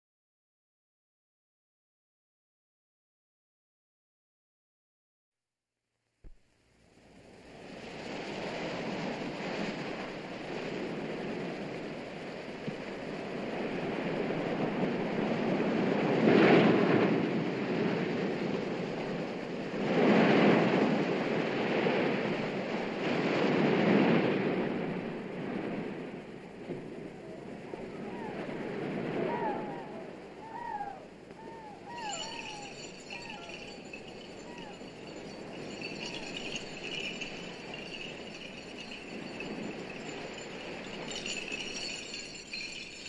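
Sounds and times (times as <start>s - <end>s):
ocean surf breaking against rocks: 7.6s - 26.7s, 31.8s - 42.6s.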